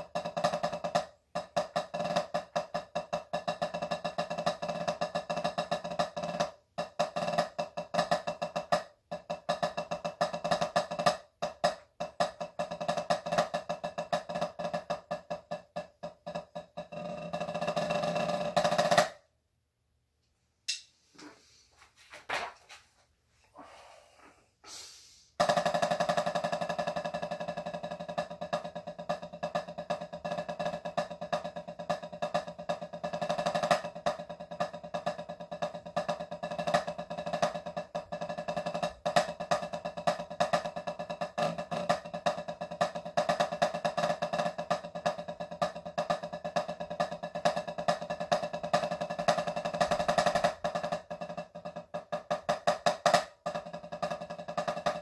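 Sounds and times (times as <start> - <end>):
drumsticks on practice pad: 20.7 - 21.4.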